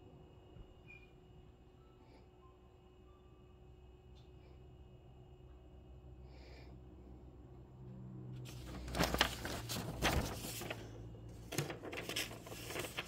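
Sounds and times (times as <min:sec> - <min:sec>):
faint low hum: 0:00.0 - 0:13.0
paper map rustling and crinkling: 0:08.4 - 0:13.0.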